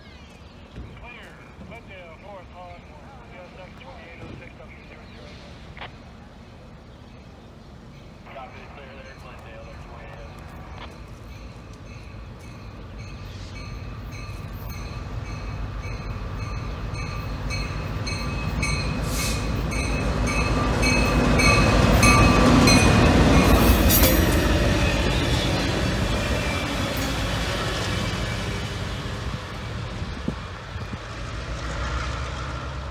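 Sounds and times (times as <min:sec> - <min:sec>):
diesel locomotive engine: 0:00.0 - 0:32.9
rolling train wheels: 0:00.1 - 0:32.9
crossing warning bell ringing: 0:07.9 - 0:25.2.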